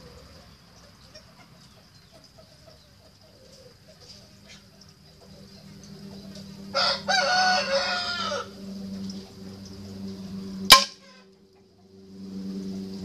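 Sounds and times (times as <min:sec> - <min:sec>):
rooster crowing: 0:06.6 - 0:08.8.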